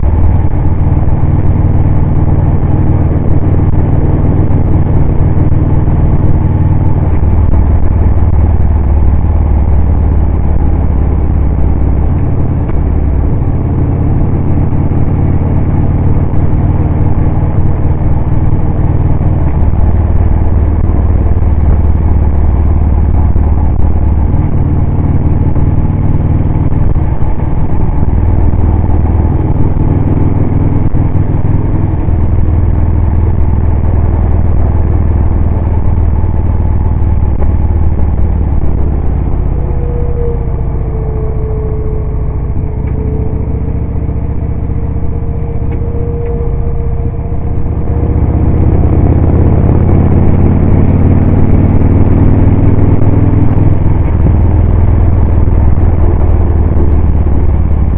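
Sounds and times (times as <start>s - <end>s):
motorcycle engine running: 0.0s - 57.9s
steady whine: 0.0s - 57.9s
wind noise: 0.0s - 57.9s.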